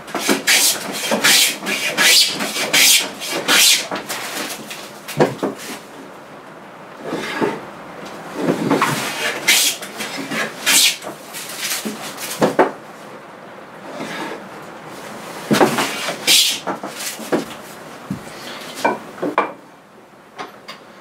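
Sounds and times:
plane blade cutting wood: 0.1 - 4.6, 7.0 - 7.6, 8.4 - 12.4, 15.5 - 16.7.

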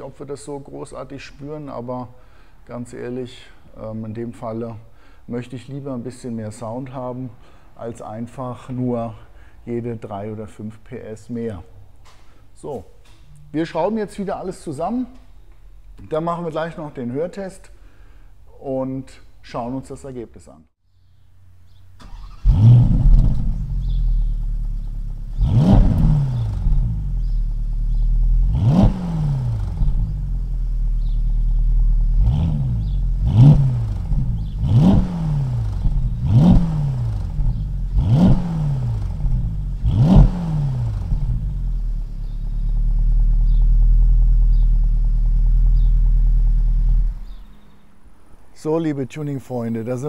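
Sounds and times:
car engine idling: 21.7 - 47.6
car engine starting: 21.7 - 48.5
car engine revving: 22.0 - 48.2.

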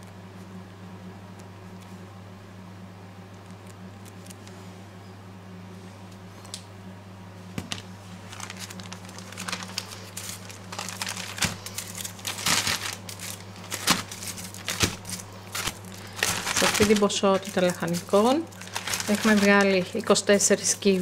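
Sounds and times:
plastic bag crinkling: 7.6 - 21.0.

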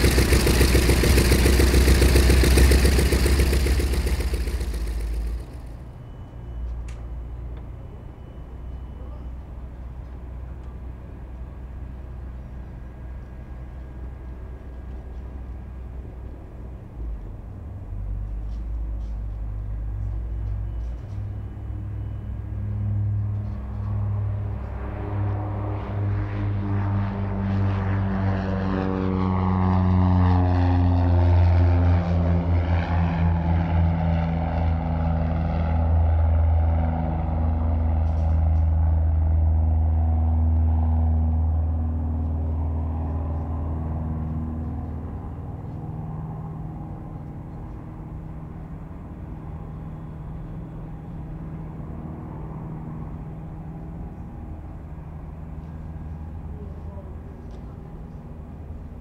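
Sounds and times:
aircraft engine running: 0.0 - 6.6, 20.6 - 59.0.

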